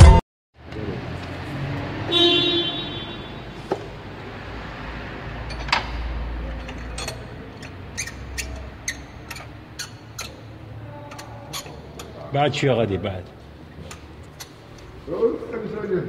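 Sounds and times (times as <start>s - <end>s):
car horn: 2.0s - 3.7s.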